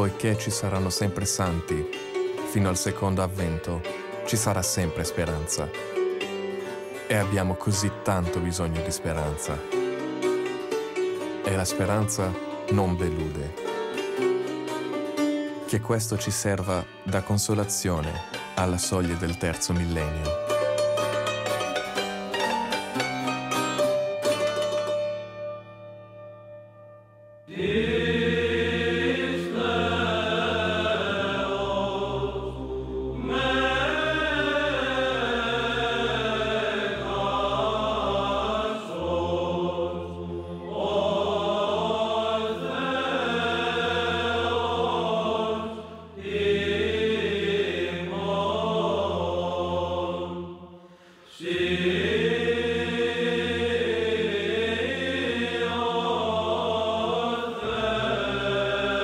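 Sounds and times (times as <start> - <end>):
choir chanting over a drone: 27.5 - 59.0.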